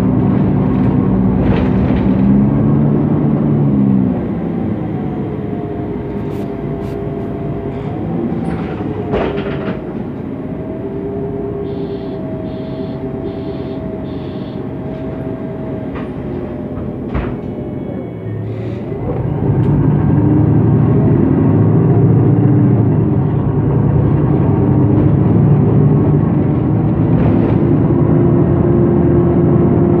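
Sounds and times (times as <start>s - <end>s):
bus engine drone with whine: 0.0s - 30.0s
short high beeps: 11.6s - 14.7s.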